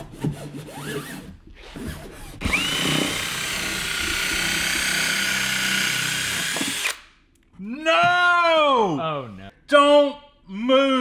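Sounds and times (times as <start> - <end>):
cordless drill whining: 2.4 - 7.0.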